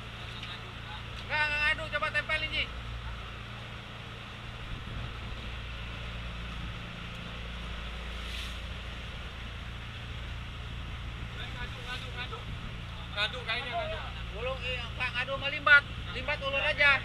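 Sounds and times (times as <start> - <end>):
boat engine humming: 0.0 - 17.0
wind and water rushing: 0.0 - 17.0
short hiss: 8.1 - 8.9.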